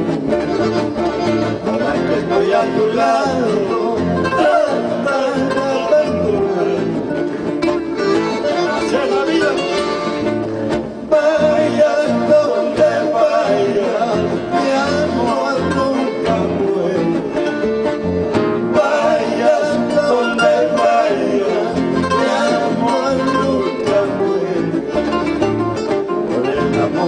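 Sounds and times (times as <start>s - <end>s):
accordion: 0.0s - 27.0s
acoustic guitars: 0.0s - 27.0s
person singing: 1.6s - 7.1s, 11.1s - 17.6s, 18.7s - 25.4s.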